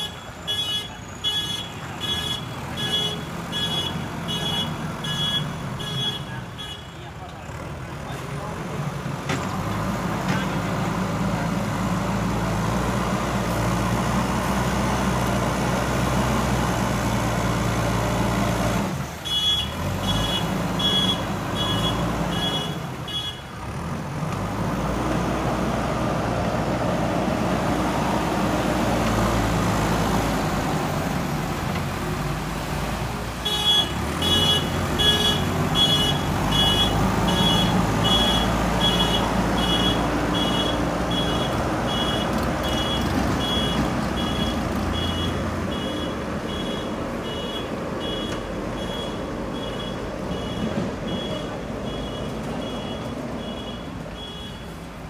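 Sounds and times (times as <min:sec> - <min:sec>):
diesel engine running: 0:06.4 - 0:55.0
reversing alarm beeping: 0:35.9 - 0:54.8.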